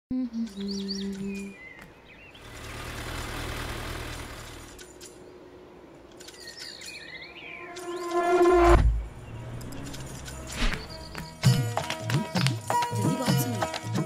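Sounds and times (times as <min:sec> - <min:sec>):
birds chirping: 0:00.1 - 0:11.7
truck engine rumble: 0:02.1 - 0:06.4, 0:07.6 - 0:12.2
music: 0:10.0 - 0:14.0.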